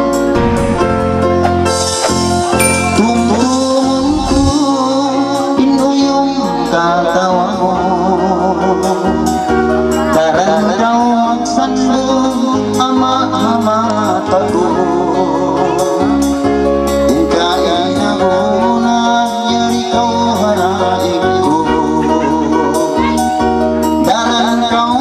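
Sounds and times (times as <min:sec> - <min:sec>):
electronic keyboard chords and bass: 0:00.0 - 0:05.9
steady drum beat: 0:00.3 - 0:04.8
man singing into a microphone: 0:02.9 - 0:25.0.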